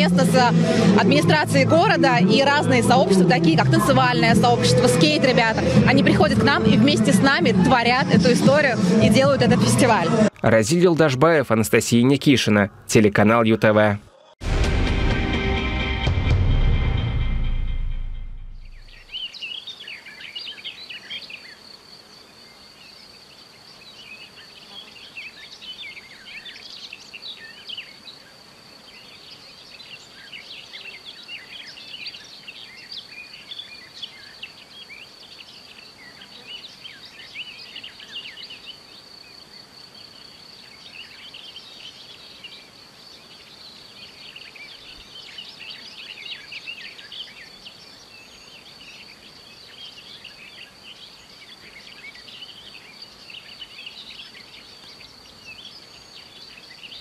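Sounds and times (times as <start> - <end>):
small birds chirping: 18.6 - 57.0.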